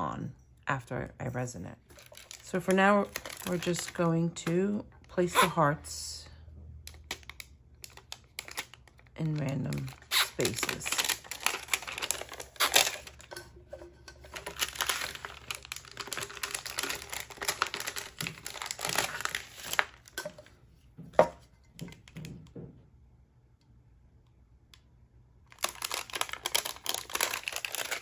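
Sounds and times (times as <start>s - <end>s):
stencil paper crinkling: 6.9s - 13.3s, 14.3s - 20.2s, 25.6s - 28.0s.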